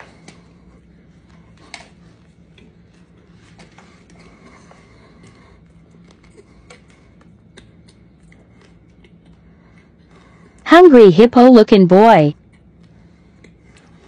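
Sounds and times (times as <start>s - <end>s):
low room hum: 0.0s - 14.0s
man chewing: 4.0s - 10.6s, 12.5s - 14.0s.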